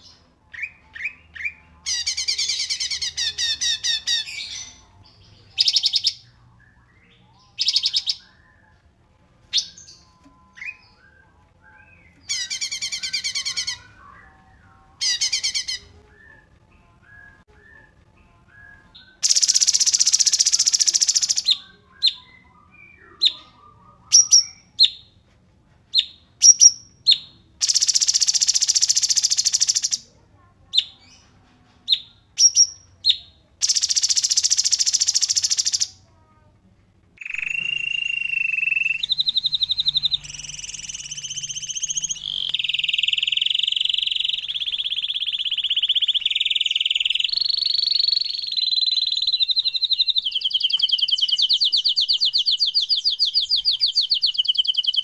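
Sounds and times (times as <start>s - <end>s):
rapid bird trills: 37.2s - 55.0s
short sharp bird chirps: 37.2s - 55.0s.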